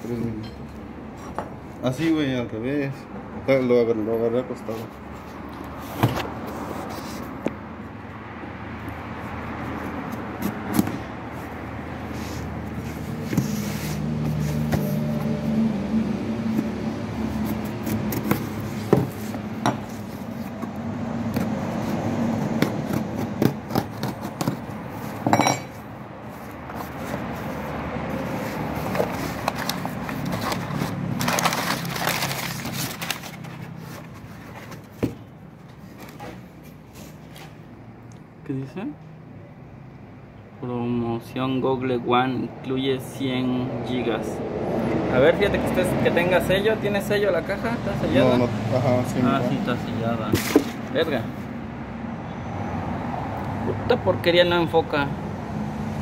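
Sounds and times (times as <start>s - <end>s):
cardboard rustling and scraping: 4.7s - 7.5s, 9.6s - 15.6s, 16.4s - 25.3s, 26.2s - 37.6s, 50.3s - 51.0s.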